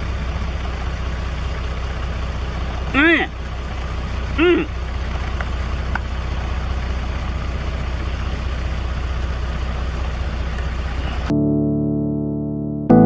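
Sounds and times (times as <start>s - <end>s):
vehicle engine idling: 0.0s - 11.3s
piano music: 11.3s - 13.0s.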